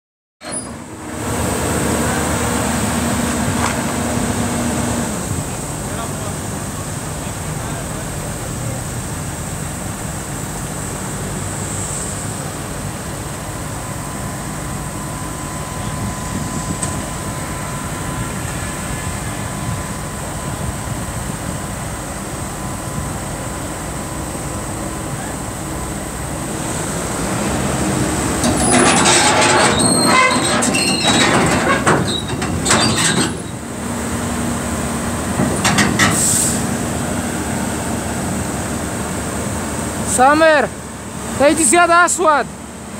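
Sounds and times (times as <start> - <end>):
steel tracks clanking and squealing: 0.4 - 1.0, 26.7 - 33.9, 35.2 - 36.7
excavator diesel engine running: 0.5 - 42.9.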